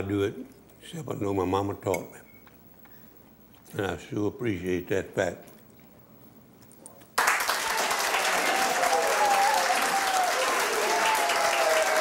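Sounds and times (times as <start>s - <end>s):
applause: 7.2s - 12.0s.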